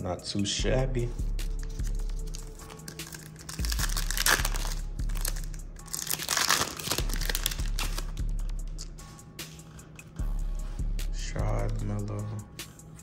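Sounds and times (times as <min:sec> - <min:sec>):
plastic wrapper crinkling: 0:01.6 - 0:08.2.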